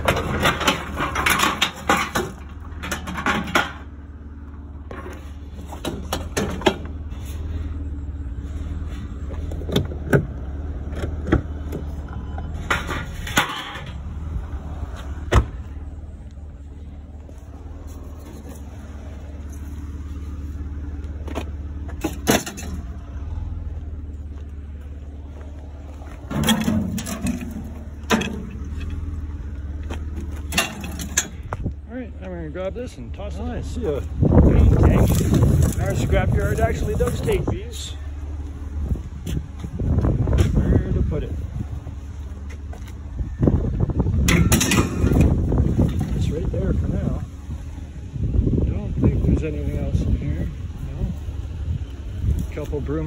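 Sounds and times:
scrap metal knocks and clanks: 0:00.0 - 0:04.0, 0:04.9 - 0:07.6, 0:11.0 - 0:14.2, 0:21.3 - 0:22.9, 0:26.0 - 0:29.2, 0:29.9 - 0:31.6, 0:44.2 - 0:46.5
low engine rumble: 0:00.0 - 0:53.0.

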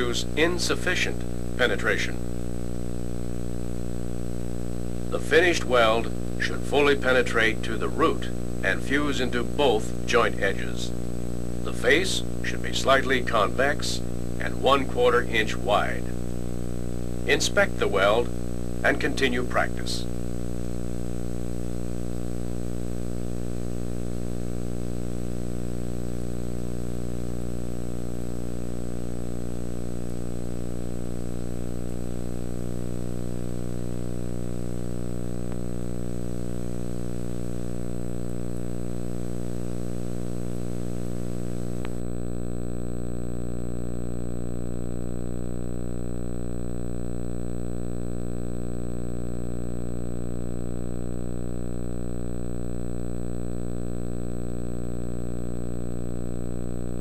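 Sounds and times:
electrical hum: 0:00.0 - 0:57.0
tape hiss: 0:00.0 - 0:57.0.

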